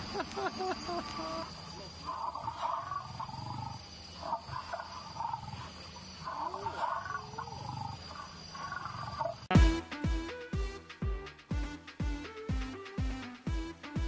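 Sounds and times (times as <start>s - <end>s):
electronic music with loud hit: 9.5s - 14.0s.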